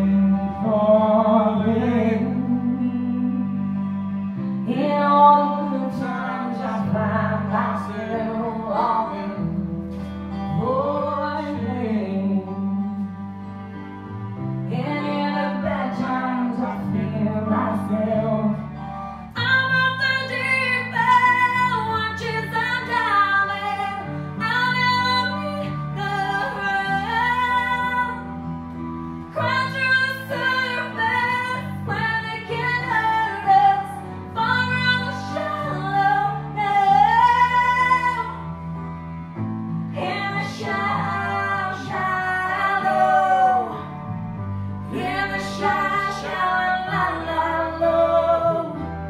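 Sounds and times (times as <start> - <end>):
instrumental backing music: 0.0 - 49.0
woman singing into microphone: 4.7 - 9.9, 10.5 - 13.0, 14.7 - 18.7, 19.4 - 28.3, 29.3 - 38.4, 39.9 - 44.0, 44.9 - 49.0.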